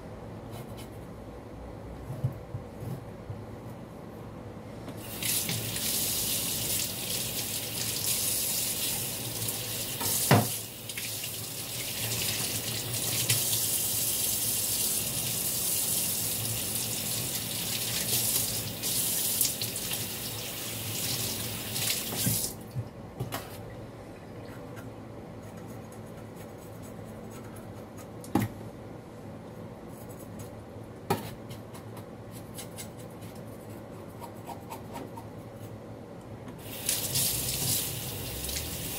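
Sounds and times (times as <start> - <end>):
tap running into sink: 10.0 - 10.6.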